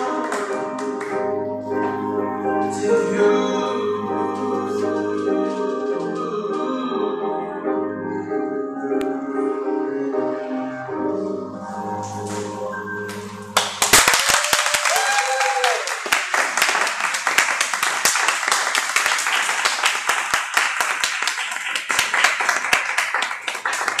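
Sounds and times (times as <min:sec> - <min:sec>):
performance music: 0:00.0 - 0:14.0
audience applause and cheering: 0:13.6 - 0:24.0
person whooping: 0:14.2 - 0:16.1.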